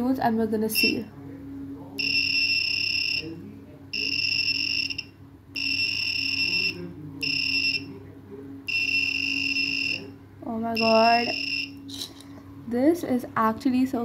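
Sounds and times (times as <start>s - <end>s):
high-pitched buzzer beeps: 0.7s - 1.1s, 2.0s - 3.4s, 4.0s - 7.9s, 8.7s - 10.1s, 10.7s - 11.9s.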